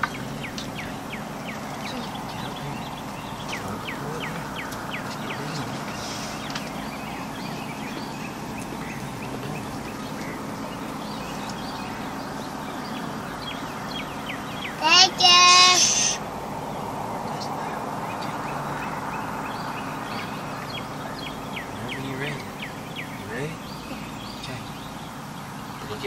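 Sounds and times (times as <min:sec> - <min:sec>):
hogs grunting: 0:00.0 - 0:13.9
birds chirping: 0:00.0 - 0:26.0.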